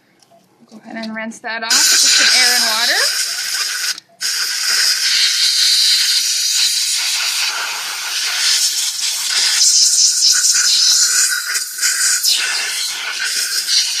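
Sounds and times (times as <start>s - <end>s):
air-water syringe hissing: 1.7s - 14.0s.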